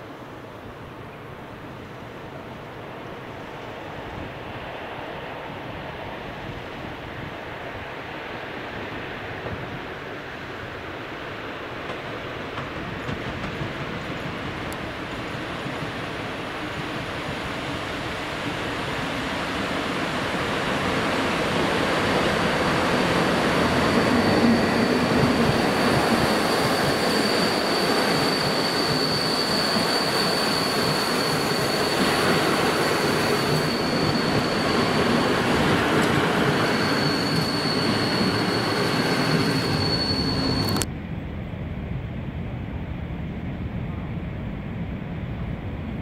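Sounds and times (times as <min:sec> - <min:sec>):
high-pitched squeal: 0:22.0 - 0:40.9.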